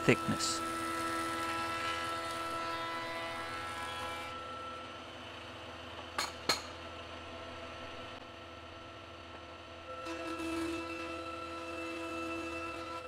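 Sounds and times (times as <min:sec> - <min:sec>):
planer machine whine: 0:00.0 - 0:05.5, 0:09.8 - 0:13.0.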